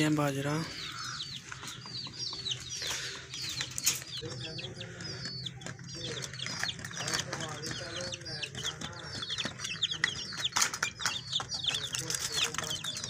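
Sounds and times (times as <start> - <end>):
low clucking bird calls: 0.0 - 13.0
small birds chirping: 0.0 - 13.0.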